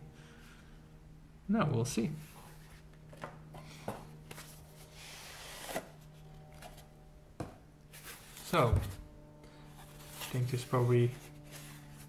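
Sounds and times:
faint low hum: 0.0 - 12.0
cardboard sleeve rubbing slide: 4.3 - 6.8
cardboard box knocks: 7.4 - 7.6.

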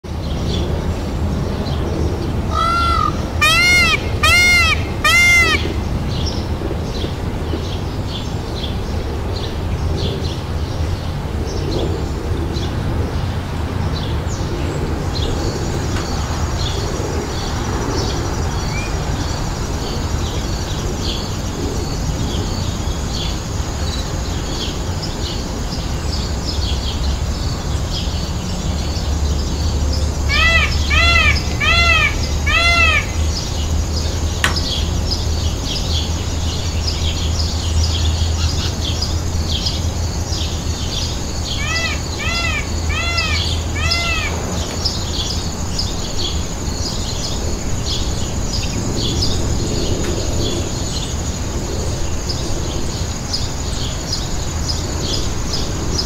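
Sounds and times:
loud clear bird calls: 1.7 - 7.1, 14.4 - 51.2
small birds chirping: 28.8 - 51.2.

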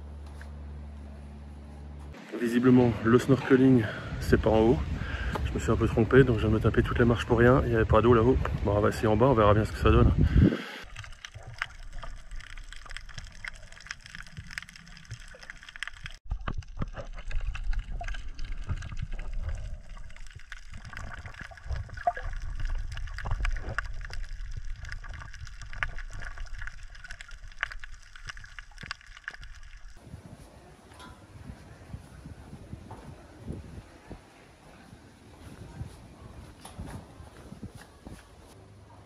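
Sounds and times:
low underwater rumble: 9.9 - 34.4
crackling clicks: 10.8 - 30.0
underwater water sloshing: 10.8 - 30.0.

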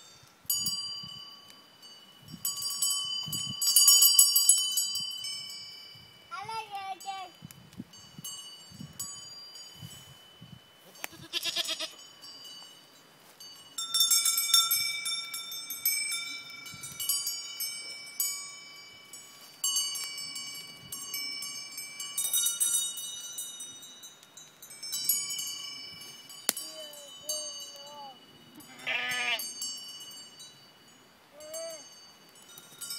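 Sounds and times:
goat collar bells ringing: 0.0 - 32.9
goat bleating: 11.0 - 12.0, 28.6 - 29.4.

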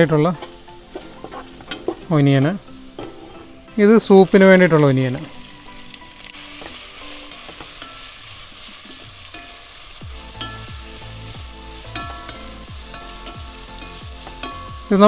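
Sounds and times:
onions sizzling in oil: 0.0 - 15.0
wooden spatula scraping pot: 0.9 - 2.1, 3.0 - 3.7.

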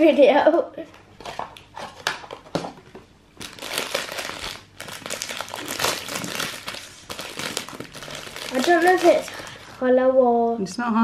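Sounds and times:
plastic wrapper crinkling: 1.2 - 9.9.

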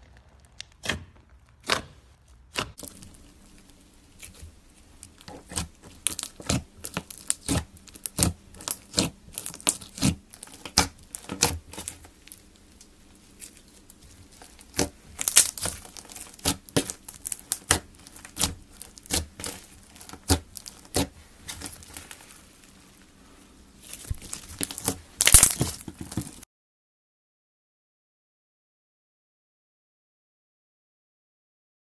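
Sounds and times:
slime popping and crackling: 0.0 - 26.4.

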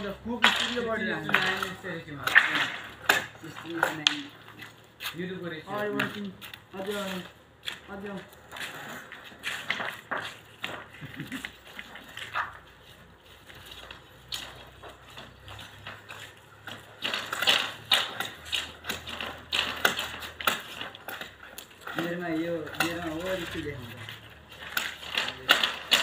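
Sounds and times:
bamboo poles knocking together: 0.0 - 4.8, 13.6 - 26.0.

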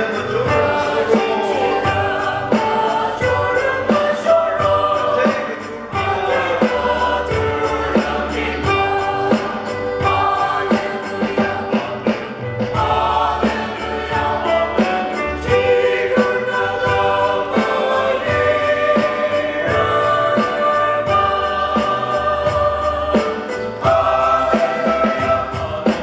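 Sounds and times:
mixed choir singing a hymn: 0.0 - 26.0
steady beat: 0.0 - 26.0.

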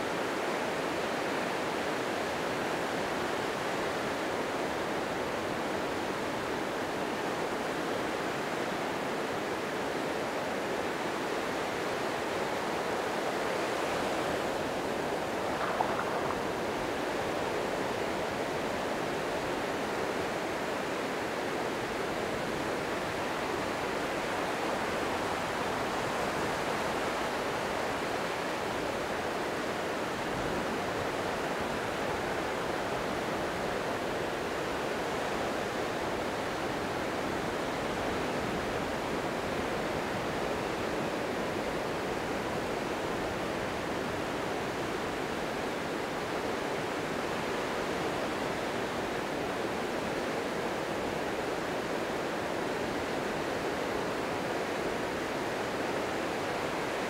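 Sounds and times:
surf washing onto beach: 13.2 - 19.4.

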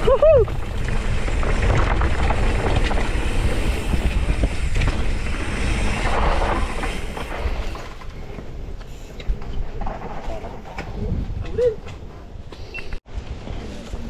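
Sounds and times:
wind buffeting microphone: 0.0 - 7.8, 10.7 - 11.8
tyres rolling over dirt and leaves: 0.0 - 11.4
bike clicks and rattles: 0.0 - 14.0.

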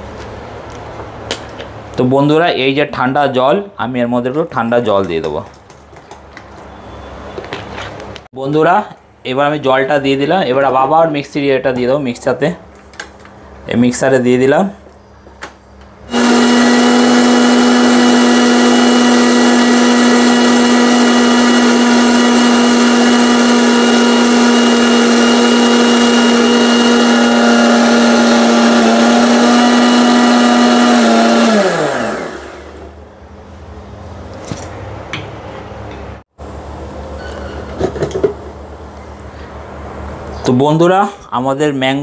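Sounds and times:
mixer grinder motor: 16.1 - 33.0.

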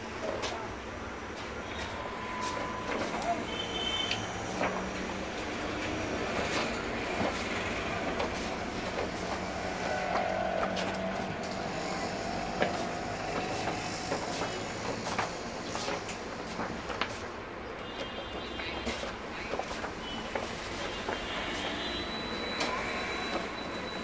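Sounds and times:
pages rustling: 4.1 - 7.5.

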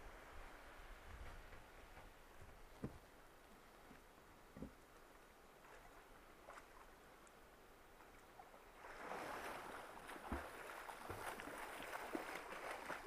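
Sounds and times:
water flowing: 3.5 - 13.0.

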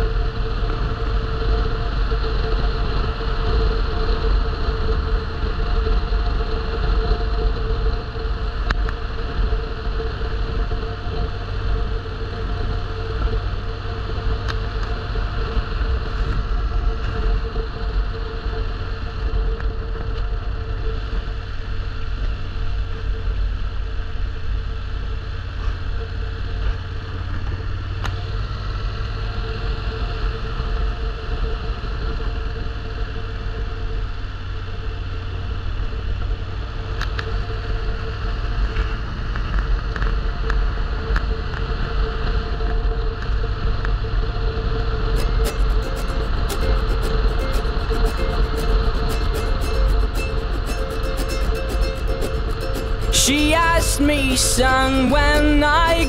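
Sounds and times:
engine and road rumble: 0.0 - 56.0
steady hum: 45.2 - 56.0.

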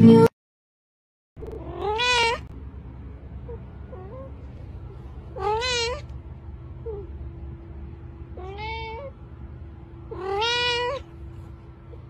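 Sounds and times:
cat meowing: 1.4 - 2.5, 5.3 - 6.2, 8.3 - 9.2, 10.1 - 11.1.

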